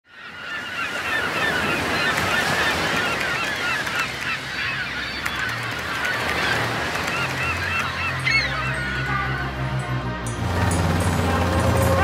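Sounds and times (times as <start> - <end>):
gulls calling in chorus: 0.1 - 9.7.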